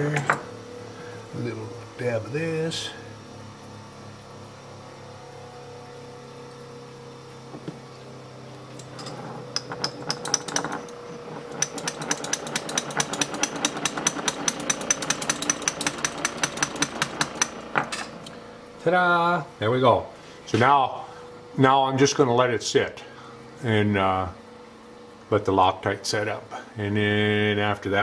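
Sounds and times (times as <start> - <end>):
low shop hum: 0.0 - 28.0.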